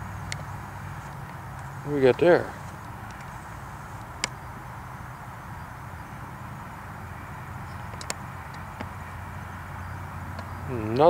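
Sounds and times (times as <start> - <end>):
faint hiss: 0.0 - 11.0
small sharp clicks: 2.7 - 3.4, 7.9 - 8.9.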